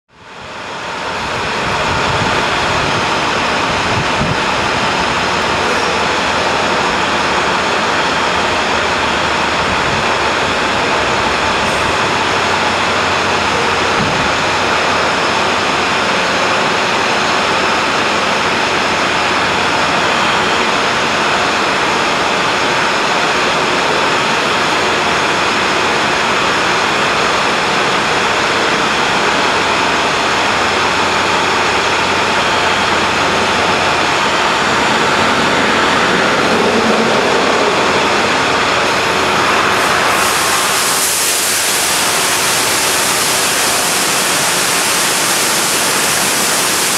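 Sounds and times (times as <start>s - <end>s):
truck engine rushing: 0.4s - 45.2s
wash pumps: 0.4s - 46.9s
running water: 30.9s - 46.9s
high hiss: 32.6s - 46.9s.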